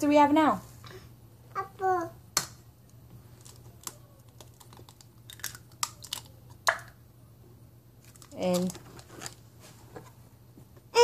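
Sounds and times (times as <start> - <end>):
eggshell clicking and cracking: 2.4 - 7.0.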